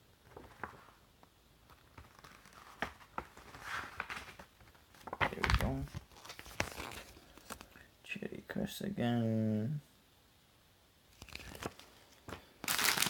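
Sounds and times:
packaging crinkling and rustling: 1.6s - 7.8s, 11.2s - 13.0s.

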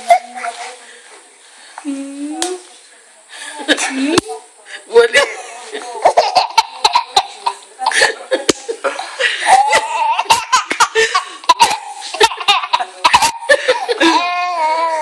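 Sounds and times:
baby laughing: 6.0s - 8.0s, 9.5s - 14.7s
woman laughing: 6.2s - 14.3s.

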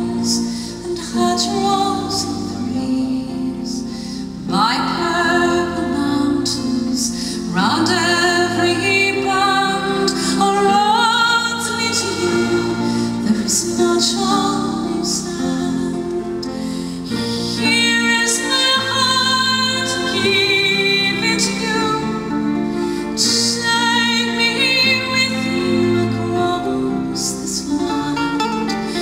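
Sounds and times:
cello: 0.0s - 29.0s
grand piano: 0.0s - 29.0s
woman singing with vibrato: 0.0s - 29.0s
drums: 11.6s - 15.5s.

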